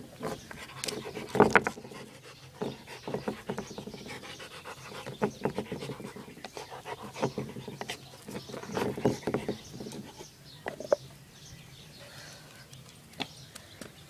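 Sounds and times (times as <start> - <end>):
dog panting hard: 0.5 - 9.5.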